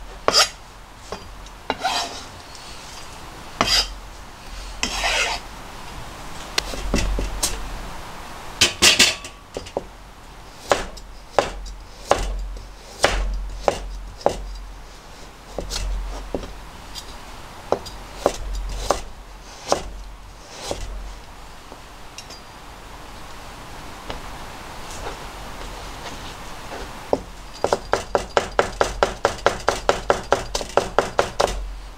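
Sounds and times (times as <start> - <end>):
knife chopping on cutting board: 0.3 - 0.5, 10.7 - 12.4, 13.0 - 14.5, 20.5 - 20.9, 27.2 - 31.6.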